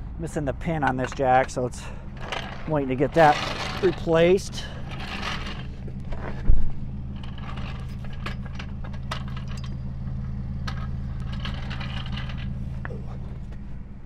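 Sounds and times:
van engine idling: 0:00.0 - 0:14.0
floor jack metal clicks and scrapes: 0:00.8 - 0:13.6.

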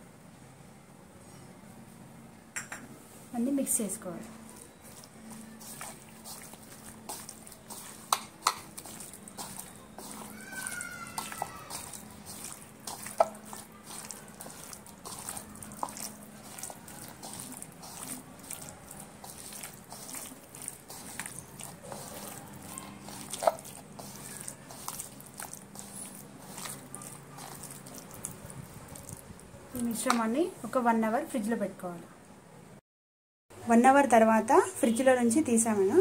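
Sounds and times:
wet squelching of marinade: 0:04.3 - 0:30.3.

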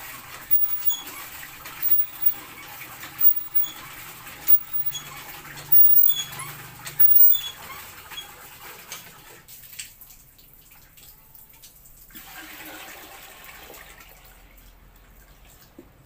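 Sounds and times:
water pouring into plastic drum: 0:12.1 - 0:14.4.

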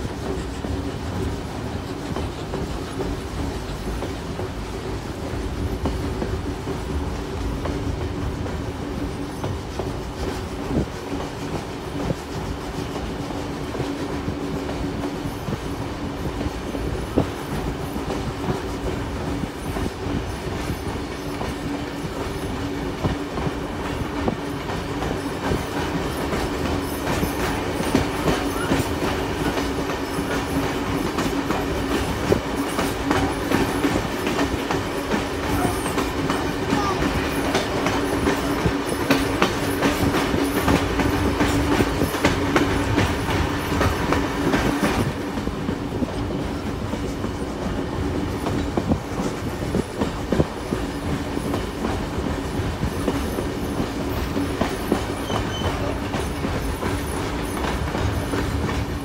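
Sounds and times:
train running hum: 0:00.0 - 0:59.0.

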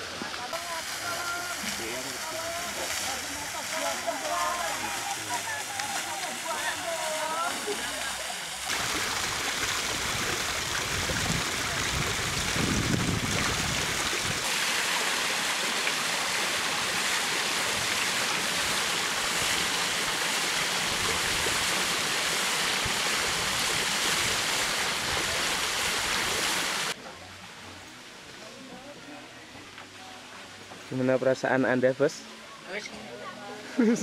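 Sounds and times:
water splashing onto stone: 0:00.5 - 0:27.0.

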